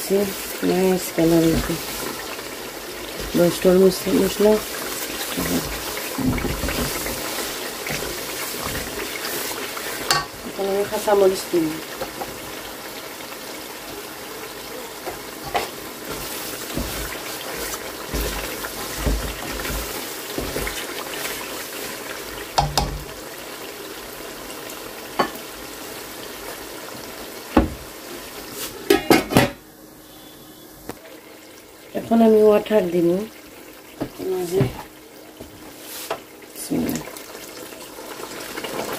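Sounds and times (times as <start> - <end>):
curry sizzling in a pan: 0.0 - 38.9
wooden spatula scraping: 3.0 - 10.2, 15.4 - 22.0
spatula knocking on pan: 22.6 - 23.1.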